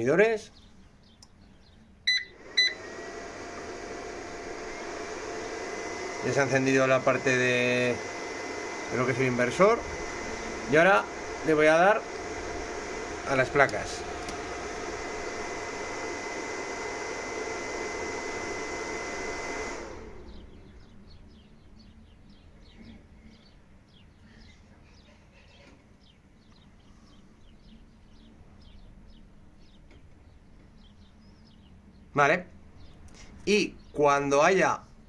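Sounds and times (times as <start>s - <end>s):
cooling fan whirring with whine: 0.0s - 35.0s.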